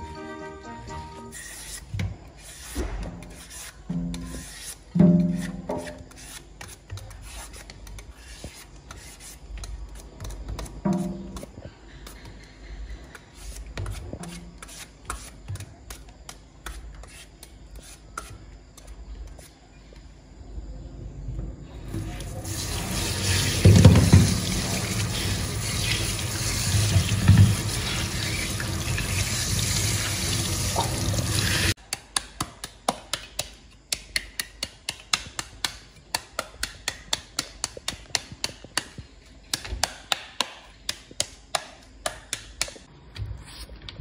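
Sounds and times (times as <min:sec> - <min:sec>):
peeler scraping fruit: 0:01.2 - 0:12.5
tap running into sink: 0:22.6 - 0:25.0, 0:26.3 - 0:28.8.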